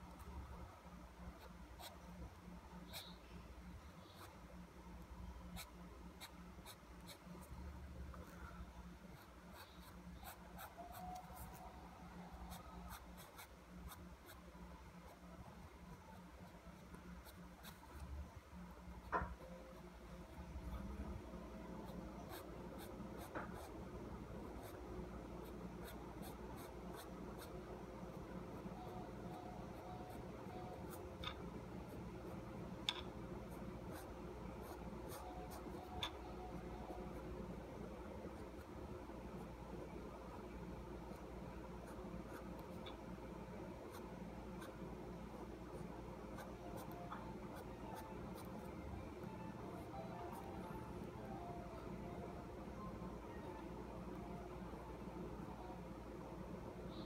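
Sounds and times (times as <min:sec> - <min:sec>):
faint low hum: 0:00.0 - 0:57.0
pen scratching on paper: 0:12.4 - 0:14.4, 0:33.5 - 0:35.9.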